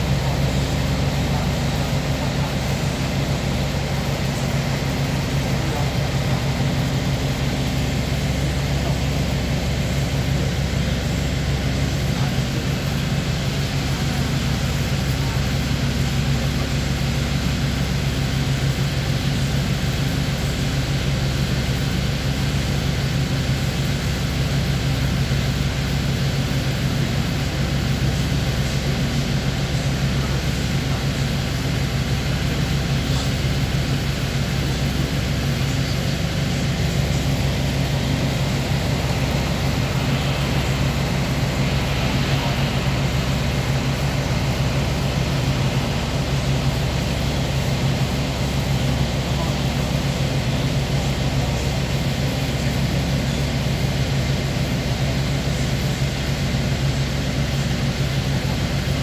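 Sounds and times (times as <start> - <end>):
ferry engine drone: 0.0 - 59.0
wind: 0.0 - 59.0
water rushing: 28.4 - 59.0.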